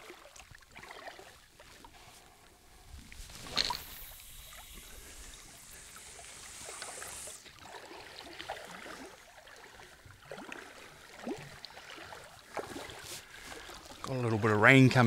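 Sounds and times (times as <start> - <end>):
wind and water hiss: 0.0 - 15.0
higher hiss: 3.0 - 7.4.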